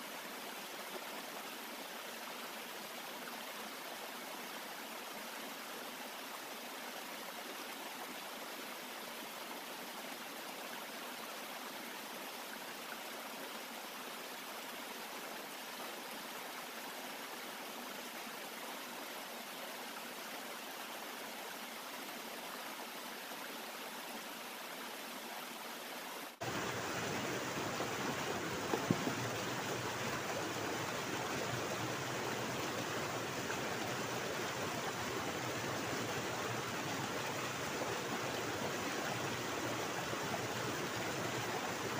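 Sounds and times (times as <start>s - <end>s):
stream rushing: 26.3s - 41.9s.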